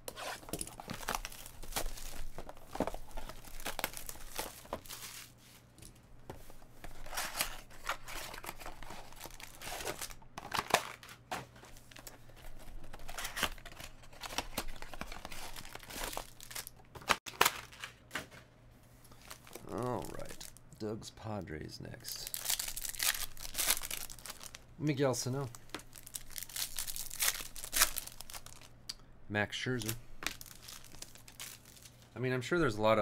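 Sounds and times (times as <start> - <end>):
shrink wrap crinkling and tearing: 0.3 - 5.4, 7.0 - 11.2, 11.8 - 18.0, 19.1 - 20.6, 22.1 - 28.7, 29.7 - 32.2.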